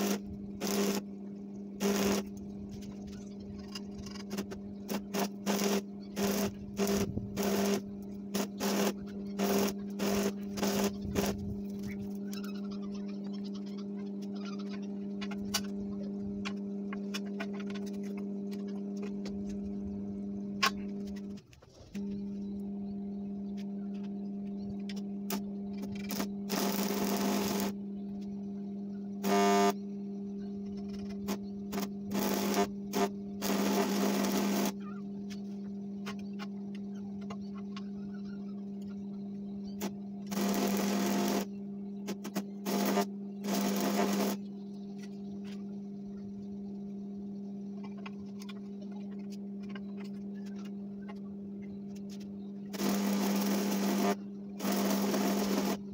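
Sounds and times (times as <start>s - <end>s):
crackling welding arc: 0.0s - 1.0s, 1.8s - 2.9s, 3.6s - 12.4s, 25.3s - 27.8s, 29.2s - 29.8s, 31.3s - 34.8s, 39.8s - 41.5s, 42.1s - 44.4s, 52.7s - 55.8s
arc welder humming: 0.0s - 28.3s, 29.0s - 36.5s, 37.2s - 45.7s, 52.0s - 55.9s.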